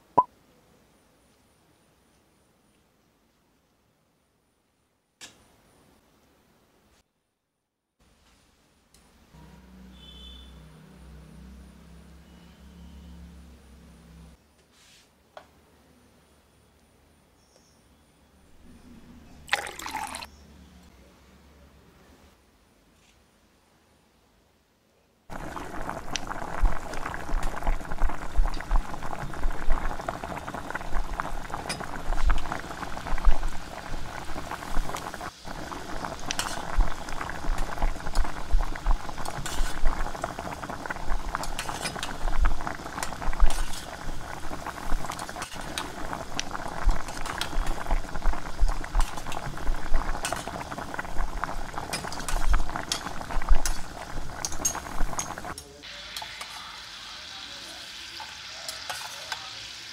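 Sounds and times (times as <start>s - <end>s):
oil bubbling and crackling: 19.4s - 20.3s, 25.3s - 59.9s.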